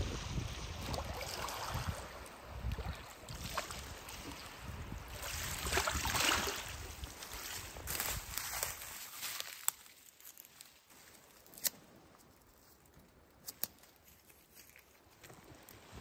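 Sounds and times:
wind rumbling on microphone: 0.0 - 8.9
small waves lapping on rocks: 0.1 - 8.0.

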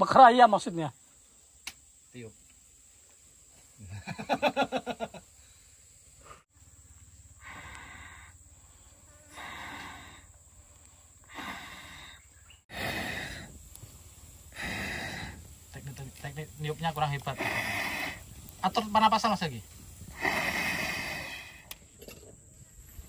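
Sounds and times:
person blowing on embers: 9.3 - 15.8, 17.2 - 18.8, 19.6 - 21.8.

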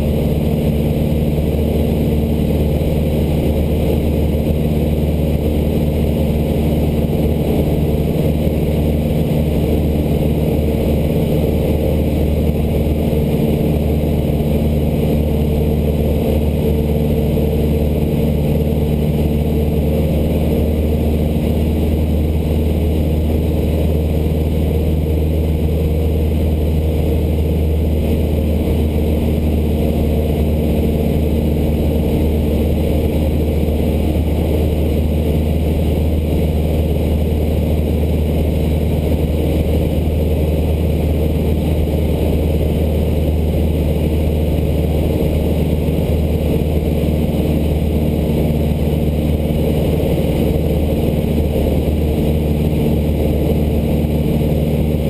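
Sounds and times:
airplane engine droning in cockpit: 0.0 - 55.0.

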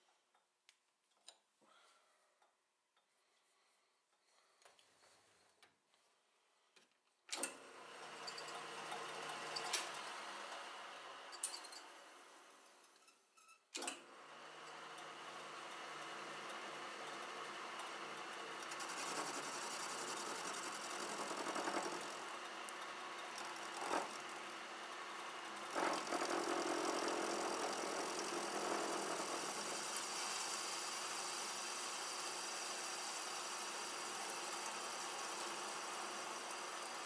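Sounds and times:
metal lathe cutting: 15.2 - 37.0.

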